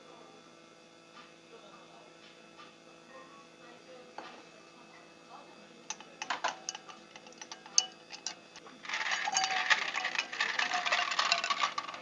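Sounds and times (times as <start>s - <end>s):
ice cubes rattling in glass: 5.9s - 12.0s
spoon clinking against glass: 5.9s - 12.0s.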